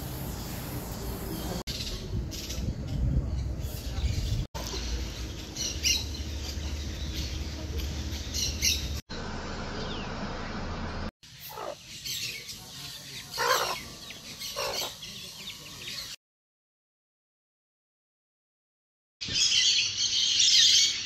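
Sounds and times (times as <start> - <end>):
low steady rumble: 0.0 - 11.1
hen clucking: 13.3 - 13.8.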